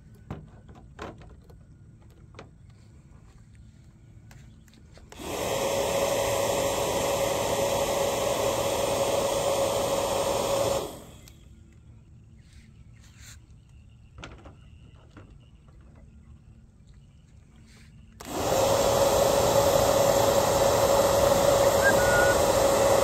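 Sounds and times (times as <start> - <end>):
bubble gun motor whining: 18.2 - 23.0.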